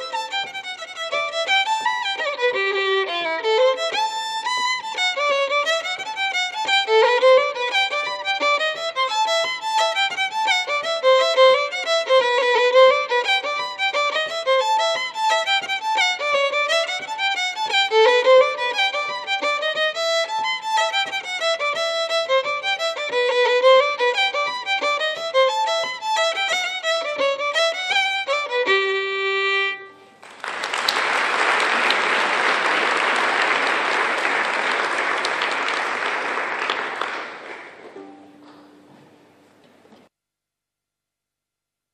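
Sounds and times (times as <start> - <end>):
solo fiddle playing folk tune: 0.0 - 30.2
audience applause: 30.2 - 38.6.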